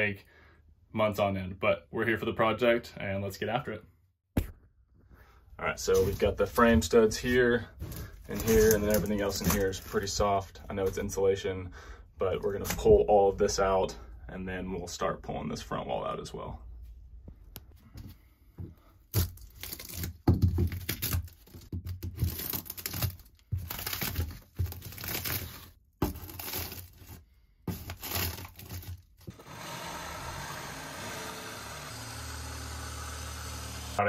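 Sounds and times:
plywood tearing and scraping: 7.8 - 10.1, 19.1 - 34.0
reciprocating saw cutting wood: 29.3 - 34.0.

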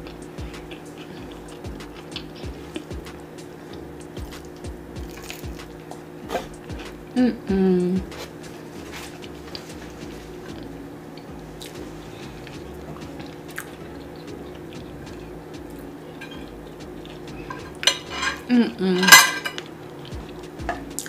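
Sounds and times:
faint chewing: 0.0 - 3.0, 4.2 - 7.0, 8.0 - 17.8
steady low hum: 0.0 - 21.0
cutlery clinking on plate: 16.2 - 16.5, 17.5 - 19.7.

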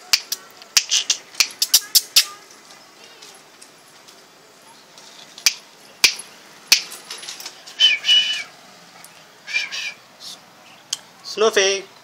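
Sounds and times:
fingers snapping: 0.1 - 2.3.

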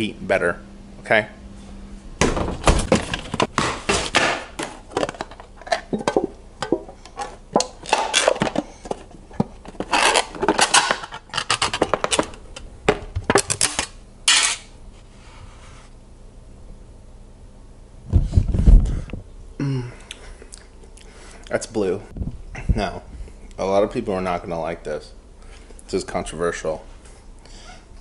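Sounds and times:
plastic containers knocking and clicking: 2.3 - 13.5.

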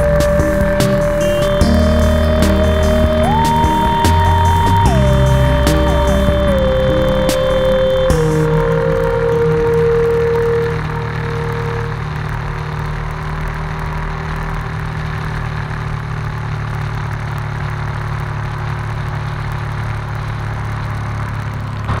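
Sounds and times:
motorcycle engine running: 0.0 - 22.0
road noise: 0.0 - 22.0.

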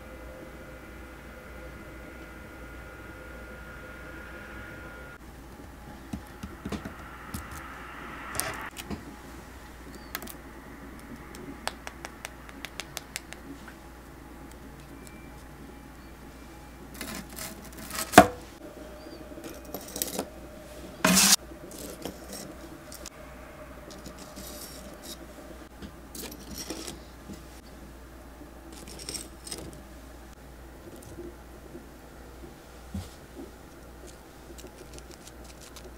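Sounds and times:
short noisy rasp: 21.0 - 21.4.

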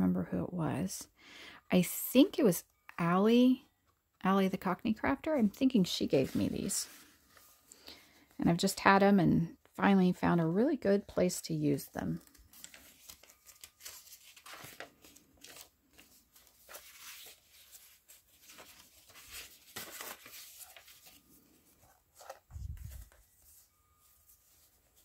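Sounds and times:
paper pages rustling: 6.0 - 8.4, 12.1 - 25.0.

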